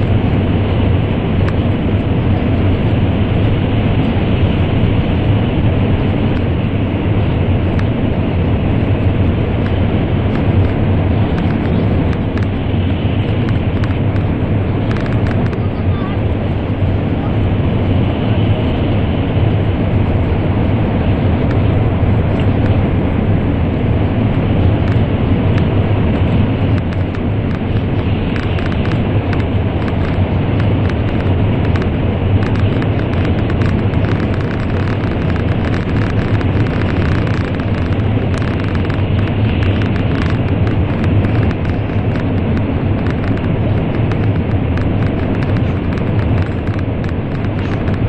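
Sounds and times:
train cabin rumble: 0.0 - 48.0
faint clicks: 13.2 - 15.7, 24.8 - 25.0, 26.8 - 48.0.

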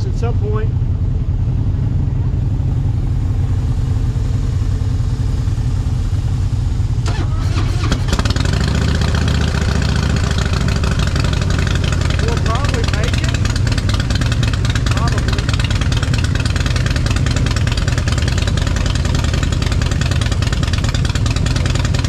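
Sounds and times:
motorcycle engine idling: 0.0 - 22.0
motorcycle starting: 1.8 - 22.0.

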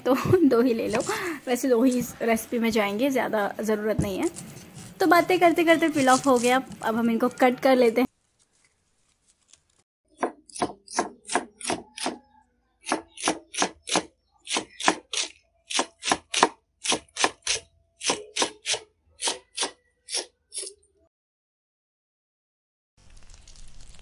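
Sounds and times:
knife chopping on plastic board: 10.2 - 12.2, 12.8 - 20.2.

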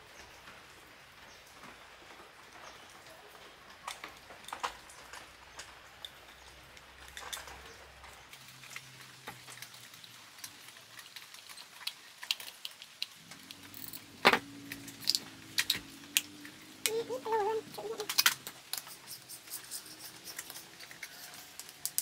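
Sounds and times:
screwdriver scraping on terminals: 18.1 - 22.0.

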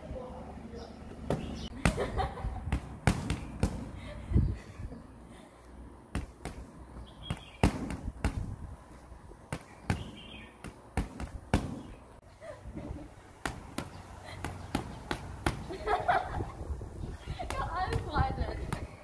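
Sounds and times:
boxing gloves smacking pads: 1.3 - 4.0, 6.1 - 8.5, 9.4 - 12.0, 13.4 - 15.9.

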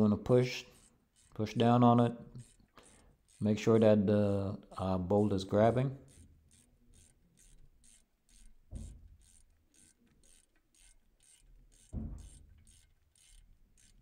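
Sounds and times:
ratchet wrench clicking: 0.3 - 3.8, 6.0 - 14.0
dull thumps: 8.6 - 9.2, 11.9 - 12.7.

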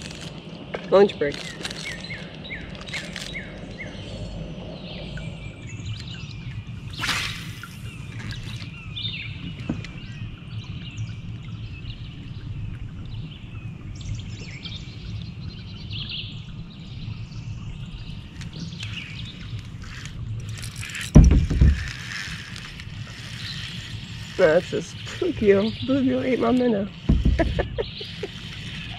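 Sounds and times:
steady low rumble: 0.0 - 8.2
birds chirping and singing: 0.3 - 12.5, 13.1 - 28.9.

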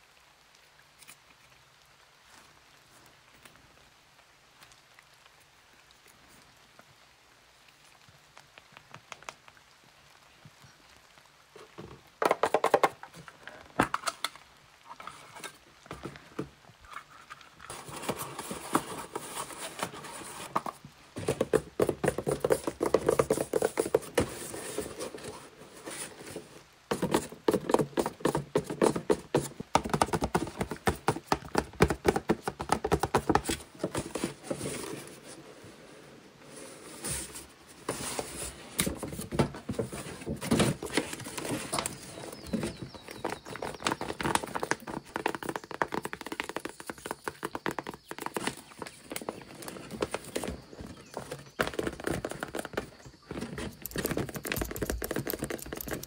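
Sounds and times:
paper crinkling and rustling: 14.9 - 35.8, 36.4 - 56.0.

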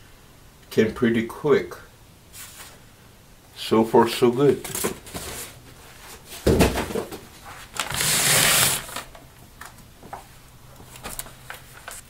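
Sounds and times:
plastic bag rustling: 4.6 - 9.2, 10.8 - 12.0.

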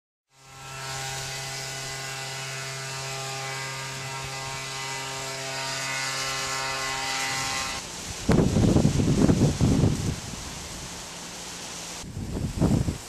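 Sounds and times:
even hiss: 5.7 - 13.0.

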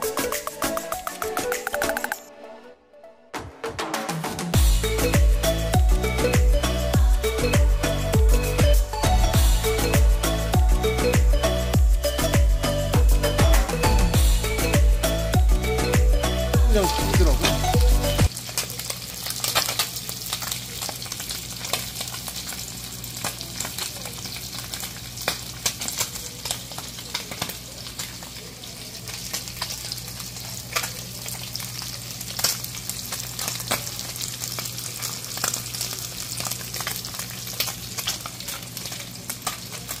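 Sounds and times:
fish frying in hot oil: 17.8 - 40.0.

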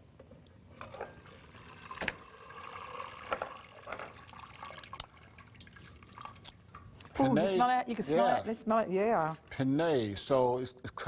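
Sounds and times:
water dripping into pot: 0.9 - 7.2.

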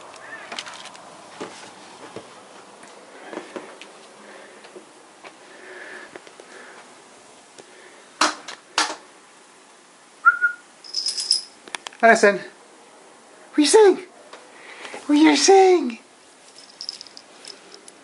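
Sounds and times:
faint rustling: 10.9 - 11.6, 16.4 - 18.0.

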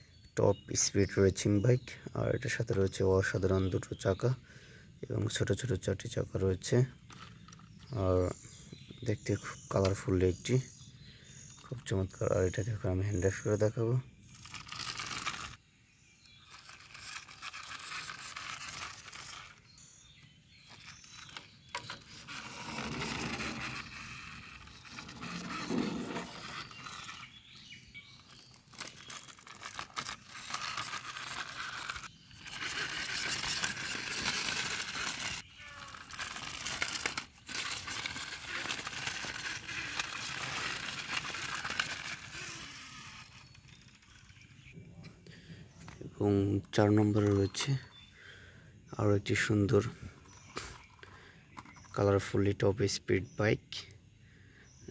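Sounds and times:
plastic wheels scraping over brick: 6.4 - 15.6, 16.2 - 44.8, 46.6 - 47.9.

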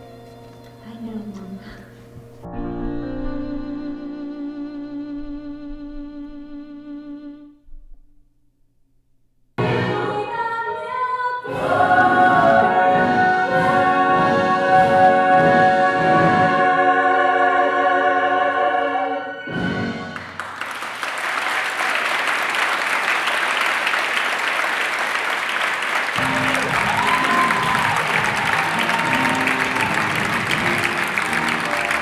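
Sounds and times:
orchestral accompaniment: 11.5 - 20.4, 26.2 - 32.0
audience applause: 20.2 - 32.0.

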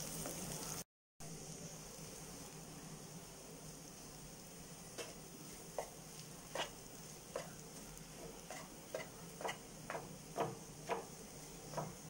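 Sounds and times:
food sizzling in oil: 0.0 - 12.0
wooden spatula scraping a pan: 4.9 - 12.0.

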